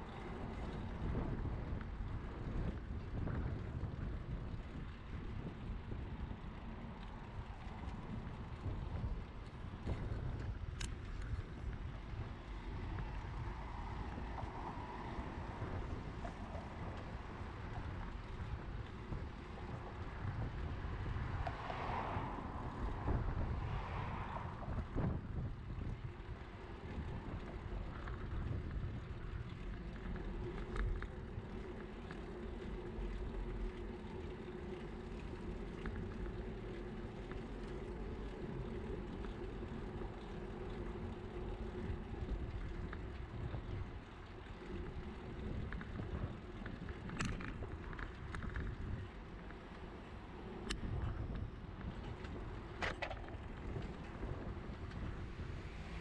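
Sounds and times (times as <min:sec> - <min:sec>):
bicycle road rumble: 0:00.0 - 0:56.0
wind on microphone: 0:00.0 - 0:56.0
car passing close by: 0:21.3 - 0:25.0.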